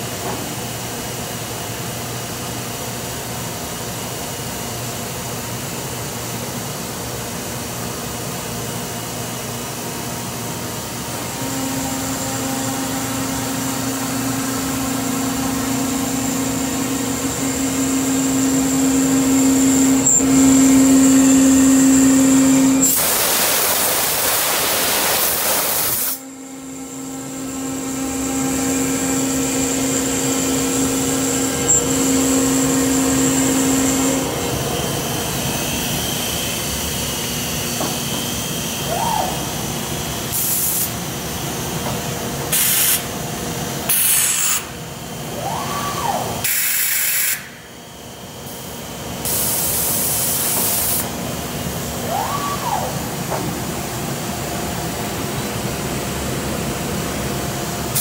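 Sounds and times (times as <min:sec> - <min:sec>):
machine running noise: 0:00.0 - 0:58.0
router spindle whine: 0:10.7 - 0:23.0, 0:25.9 - 0:40.3
loud hiss: 0:22.8 - 0:26.2.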